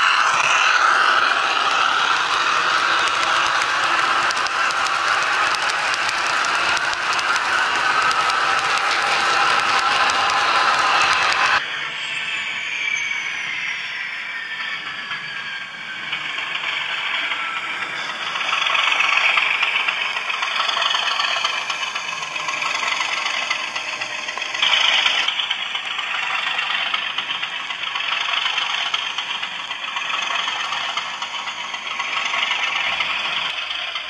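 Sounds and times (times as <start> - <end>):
model train rattling on track: 0.0 - 12.1, 13.4 - 34.0
model diesel engine sound from small speaker: 18.3 - 34.0.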